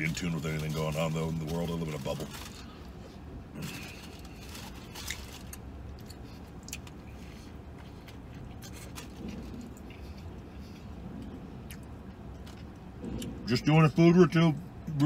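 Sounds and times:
steady low hum: 0.0s - 15.0s
man chewing food: 1.7s - 13.4s.

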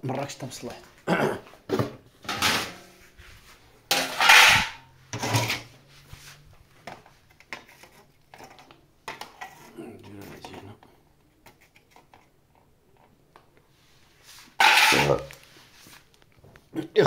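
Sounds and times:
scraping sliding noises: 2.4s - 6.5s, 13.8s - 16.0s.

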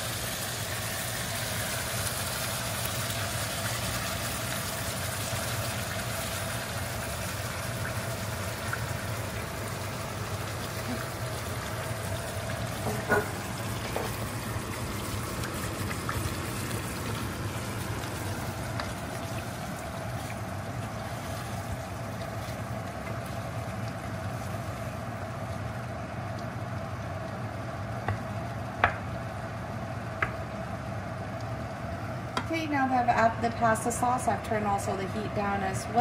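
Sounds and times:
sauce sizzling in a frying pan: 0.0s - 27.0s
steady hum: 0.0s - 36.0s.

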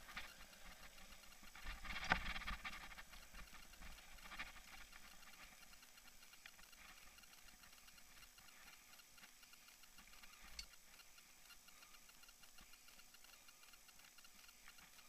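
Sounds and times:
bicycle freehub ticking: 0.0s - 15.0s.

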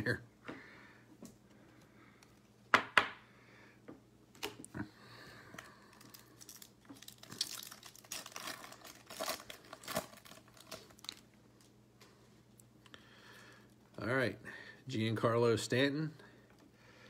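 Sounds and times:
foil wrapper tearing and crinkling: 5.9s - 11.3s.

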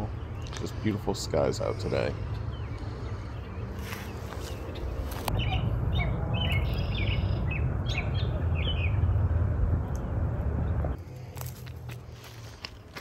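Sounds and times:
small birds chirping: 0.0s - 9.2s
steady low rumble: 0.0s - 13.0s.

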